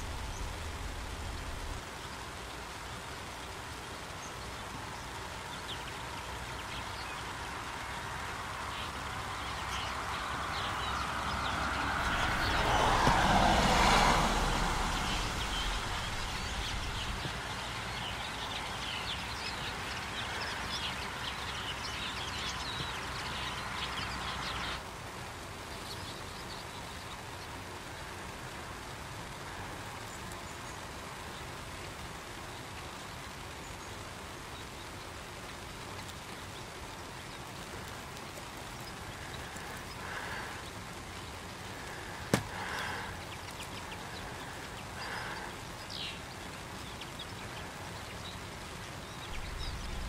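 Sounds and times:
steady rain: 0.0s - 50.0s
vehicle passing: 9.6s - 18.2s, 49.3s - 50.0s
finches twittering: 49.0s - 50.0s.

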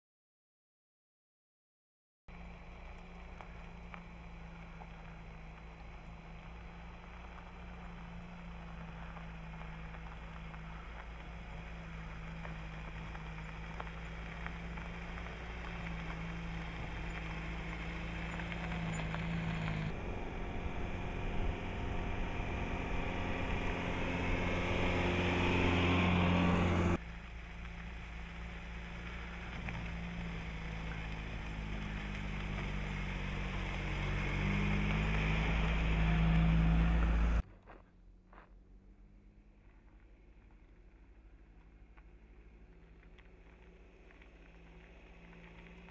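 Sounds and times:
car driving by: 2.3s - 37.4s.

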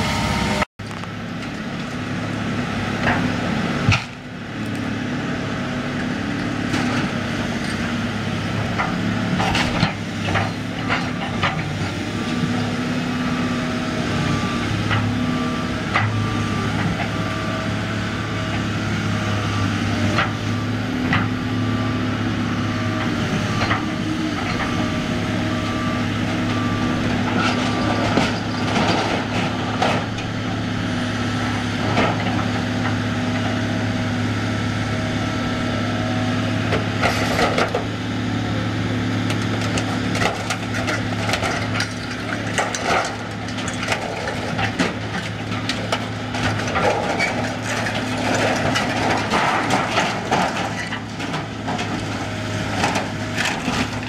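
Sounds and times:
excavator diesel engine running: 0.0s - 54.0s
wood splintering and crunching: 39.2s - 54.0s.

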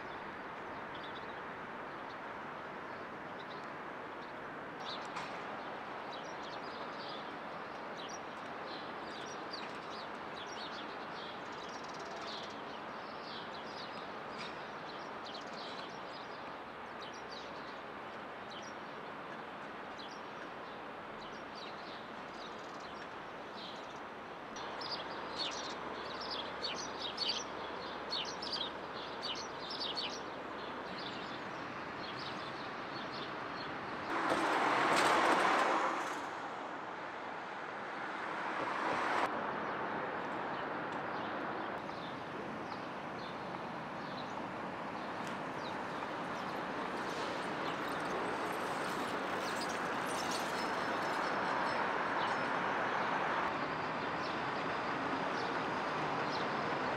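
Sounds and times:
distant city traffic hum: 0.0s - 56.9s
small birds chirping: 18.5s - 34.0s.

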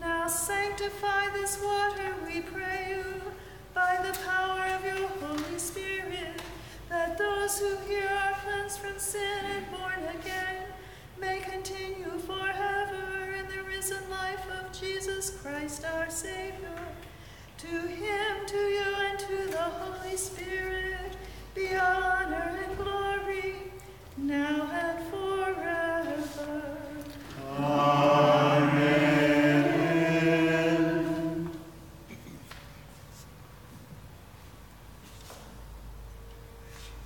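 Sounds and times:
woman chanting: 0.0s - 17.0s, 17.6s - 31.7s
group of voices singing: 27.1s - 31.8s.

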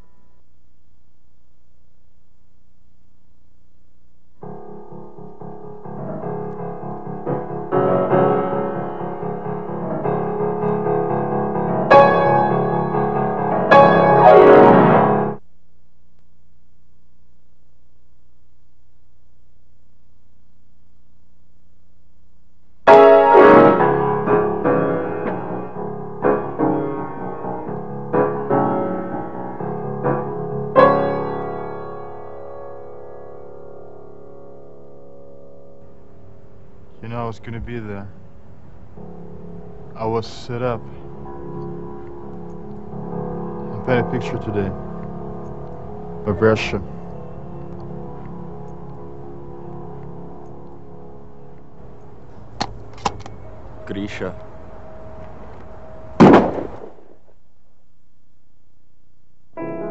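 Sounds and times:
piano music: 4.4s - 15.4s, 22.8s - 56.7s, 59.6s - 59.9s.

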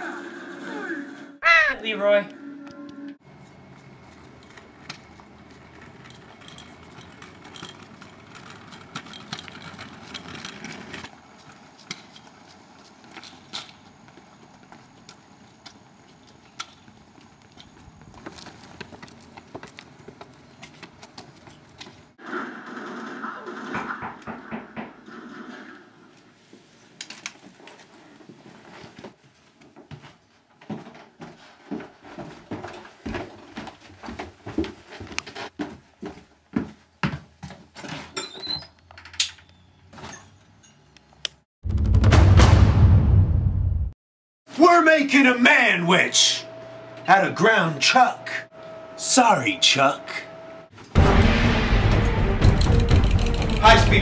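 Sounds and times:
scooter wheels rolling on asphalt: 3.2s - 23.0s, 23.7s - 36.6s
footsteps: 8.8s - 22.2s, 27.4s - 37.8s.

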